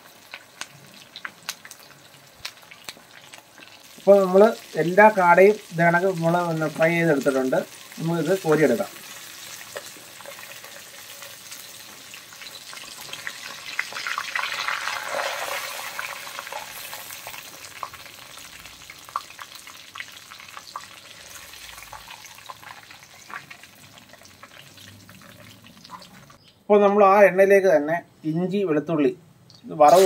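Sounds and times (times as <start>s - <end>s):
oil sizzling while deep-frying: 0.0s - 26.5s, 29.8s - 30.0s.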